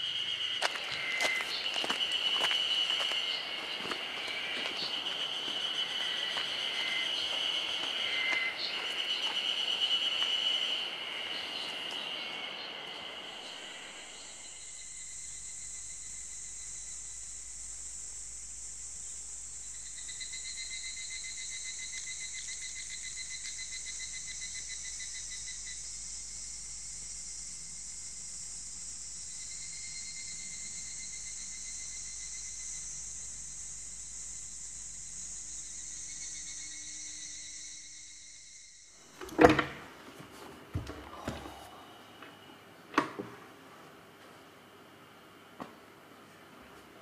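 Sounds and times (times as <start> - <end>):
rapidly pulsing chirp: 0.0 - 16.7
high thin insect drone: 0.0 - 39.9
insects trilling: 0.0 - 40.0, 40.7 - 43.2
background hiss: 0.0 - 47.0.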